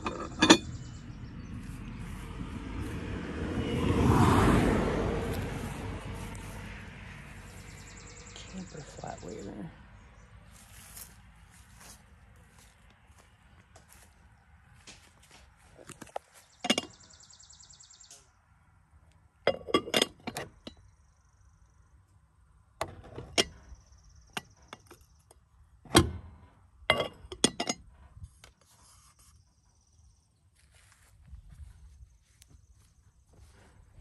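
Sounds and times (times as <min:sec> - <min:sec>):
china dishes clinking: 0:00.0 - 0:00.8.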